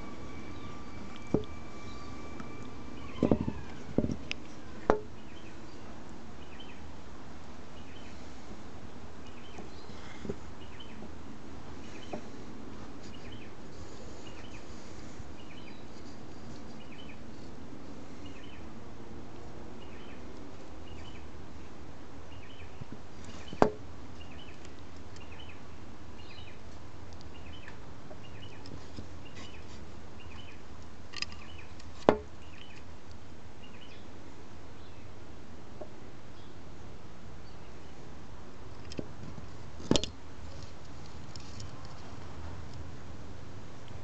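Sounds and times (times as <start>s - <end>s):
faint high chirp: 0.0s - 3.8s
outdoor background: 0.0s - 44.0s
sharp handling knocks: 32.0s - 32.3s.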